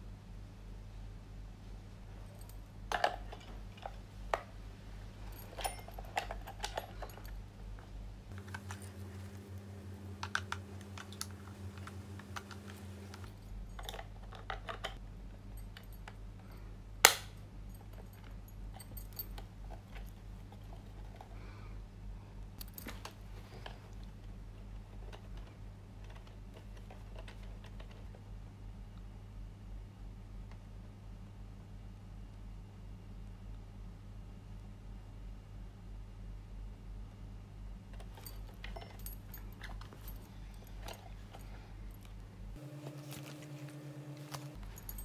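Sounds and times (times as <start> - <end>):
sharp plastic snap: 17.0 - 17.4.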